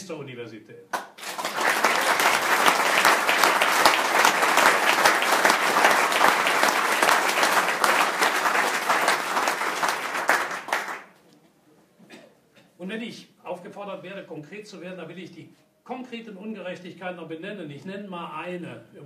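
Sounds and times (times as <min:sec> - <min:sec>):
audience applauding: 0:01.0 - 0:11.2.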